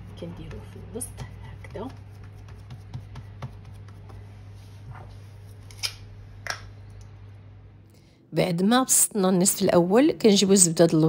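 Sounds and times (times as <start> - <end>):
steady low hum: 0.0 - 11.0
hands tapping cookie dough: 0.3 - 4.2.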